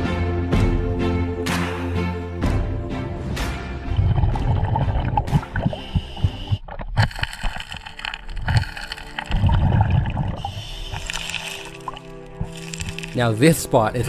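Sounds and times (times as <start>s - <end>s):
underwater gurgling: 3.9s - 13.8s.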